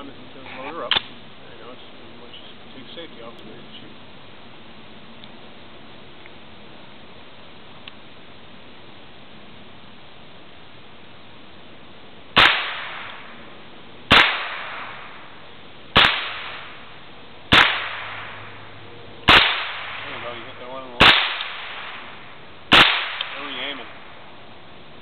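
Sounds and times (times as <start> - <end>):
rifle shots with echo: 12.4 - 13.4, 14.1 - 15.3, 15.9 - 16.9, 17.5 - 18.6, 19.2 - 24.2.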